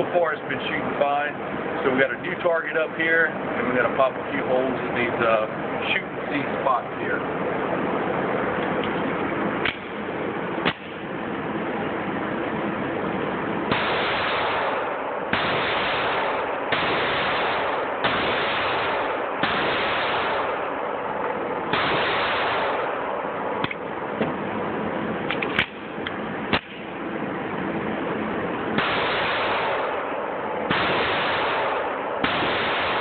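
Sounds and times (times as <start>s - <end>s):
sharp clicks and knocks: 9.6s - 10.0s, 25.3s - 26.8s
pistol shots echoing indoors: 30.7s - 33.0s.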